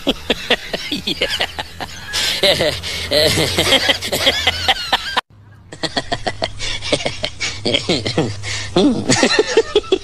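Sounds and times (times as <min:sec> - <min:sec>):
person laughing: 0:00.0 - 0:10.0.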